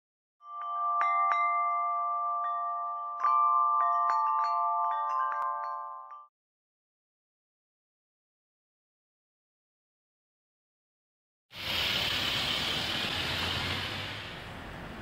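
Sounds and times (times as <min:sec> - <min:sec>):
chimes ringing: 0:00.4 - 0:06.3.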